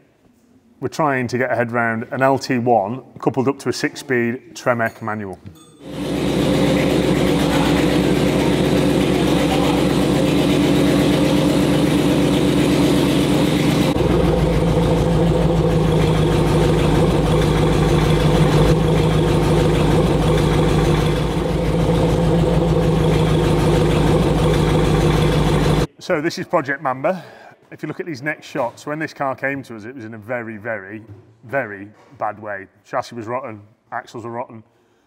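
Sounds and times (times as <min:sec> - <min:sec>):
car engine idling: 0:05.8 - 0:25.9.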